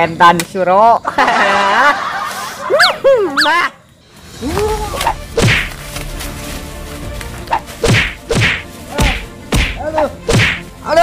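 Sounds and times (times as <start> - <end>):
punches landing: 5.3 - 5.8, 7.8 - 10.6.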